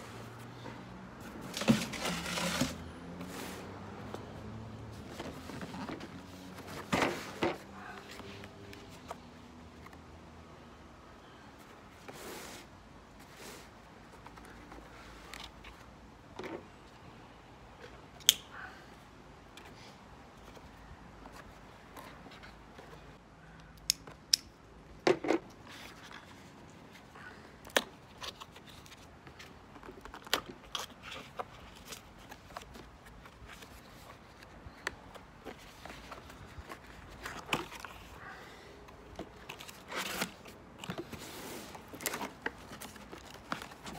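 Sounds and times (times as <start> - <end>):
hands handling wooden crate: 0.2 - 10.0, 25.0 - 43.9.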